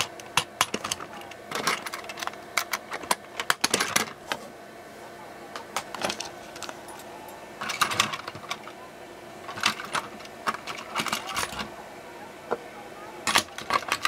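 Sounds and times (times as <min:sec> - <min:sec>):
plastic toy train cars clicking: 0:00.0 - 0:04.2, 0:09.4 - 0:11.7, 0:13.2 - 0:14.0.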